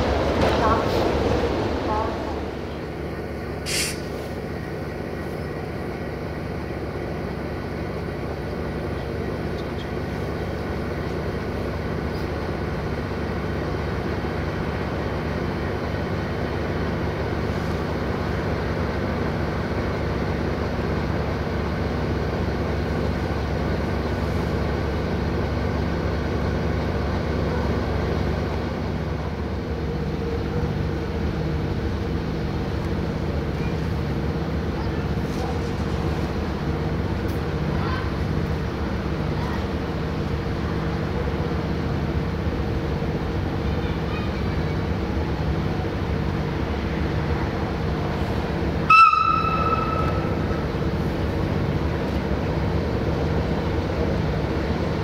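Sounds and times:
locomotive diesel engine drone: 0:00.0 - 0:55.0
higher steady tone: 0:48.9 - 0:50.8.

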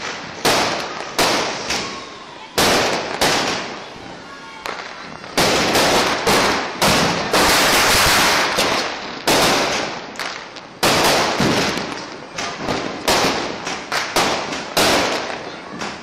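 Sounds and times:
firecrackers banging: 0:00.0 - 0:16.0.

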